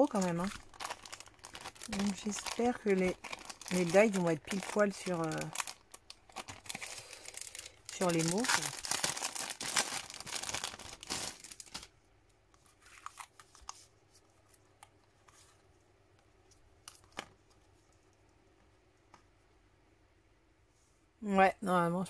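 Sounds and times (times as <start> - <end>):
plastic packaging crinkling: 0.0 - 12.0, 12.6 - 13.9
faint clicks and taps: 16.1 - 19.6.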